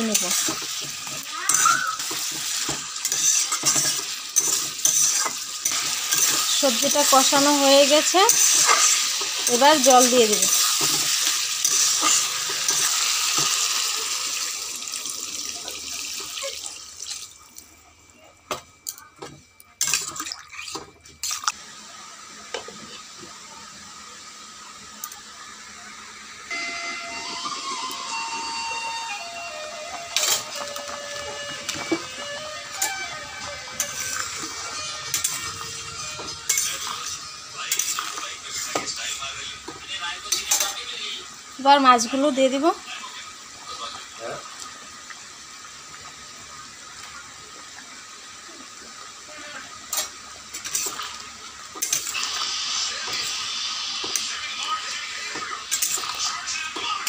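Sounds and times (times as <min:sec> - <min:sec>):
water hissing in a hot wok: 0:00.0 - 0:17.8, 0:21.5 - 0:57.0
curry boiling: 0:00.0 - 0:18.1, 0:30.2 - 0:57.0
metal ladle scraping a wok: 0:01.5 - 0:07.3, 0:10.4 - 0:13.5, 0:33.8 - 0:38.1.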